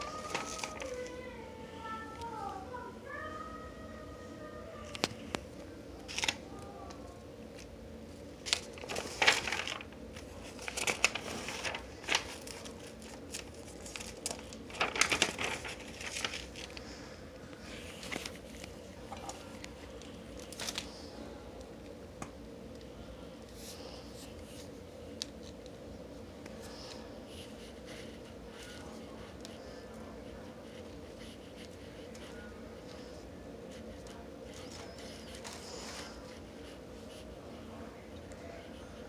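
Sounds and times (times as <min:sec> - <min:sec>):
paper rustling and crinkling: 0:00.0 - 0:02.6, 0:06.0 - 0:06.9, 0:08.4 - 0:21.1, 0:23.5 - 0:37.5
faint steady hum: 0:00.0 - 0:39.0.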